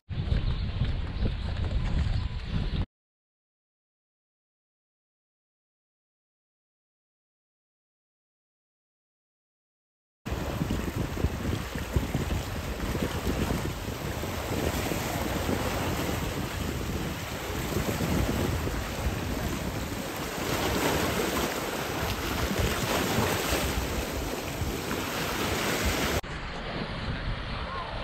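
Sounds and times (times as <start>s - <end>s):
wind buffeting microphone: 0.1s - 2.9s, 10.3s - 28.0s
sea water splashing over rocks: 10.3s - 27.2s.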